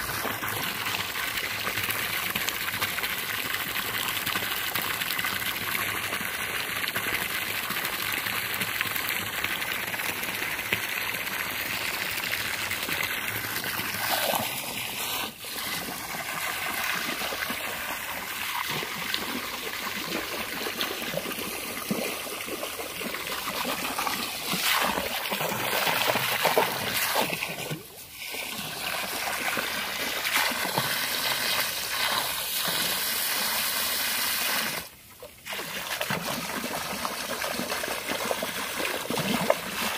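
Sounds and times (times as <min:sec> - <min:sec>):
hose water splashing into pool: 0:00.0 - 0:39.9.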